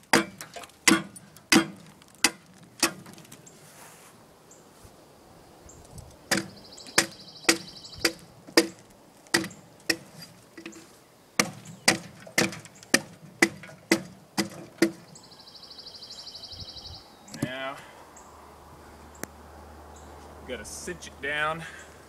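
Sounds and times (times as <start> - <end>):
axe chopping log: 0.0 - 3.3, 6.3 - 10.2, 11.4 - 15.0.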